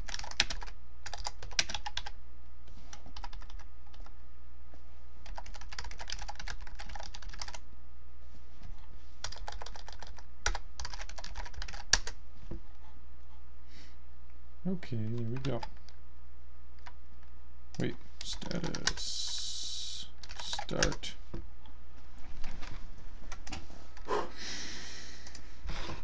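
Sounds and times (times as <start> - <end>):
computer keyboard typing: 0.0 - 2.2, 2.9 - 4.1, 5.2 - 7.6, 9.2 - 12.2, 15.1 - 16.0, 16.8 - 17.0, 17.8 - 19.4, 20.2 - 21.0
steady low hum: 0.0 - 26.0.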